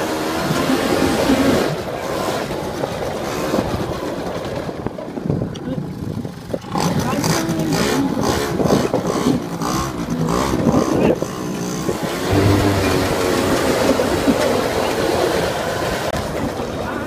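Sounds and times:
quad engine revving: 12.3 - 14.0.

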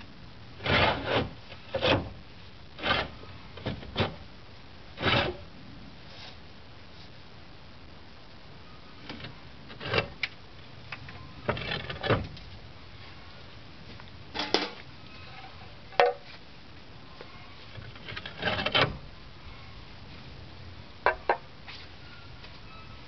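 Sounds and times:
roof tiles clacking and scraping: 9.1 - 12.5, 17.7 - 19.0.

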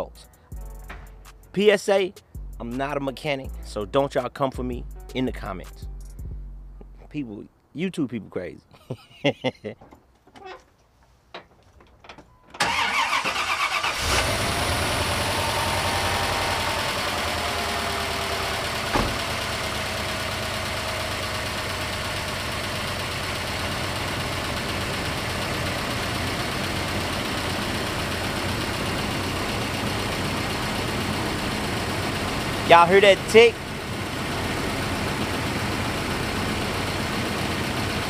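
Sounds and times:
pickup engine idling with tick: 14.0 - 38.0
short knock: 18.9 - 19.3.

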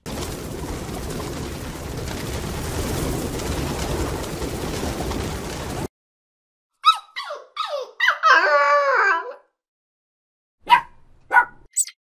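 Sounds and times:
small dog yipping: 6.8 - 9.4, 10.6 - 12.0
dog whining: 6.8 - 9.5.

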